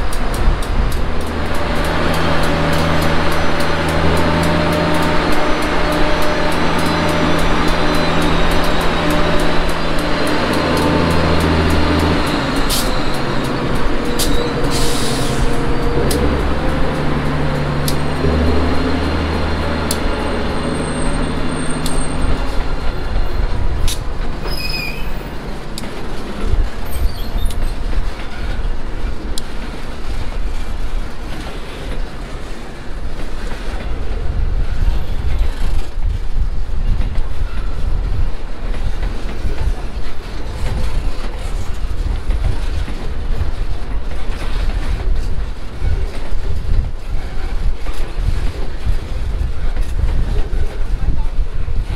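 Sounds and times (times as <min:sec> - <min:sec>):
train motor hum: 0:00.0 - 0:28.0
train wheels rumbling: 0:00.0 - 0:51.9
high-pitched wheel squeals: 0:01.7 - 0:23.6, 0:24.4 - 0:25.5, 0:26.8 - 0:28.6.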